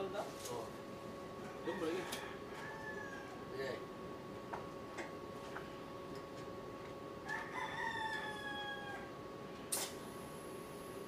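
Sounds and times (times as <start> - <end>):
faint steady hum: 0.0 - 11.0
rooster crowing: 1.4 - 3.4, 7.2 - 9.2.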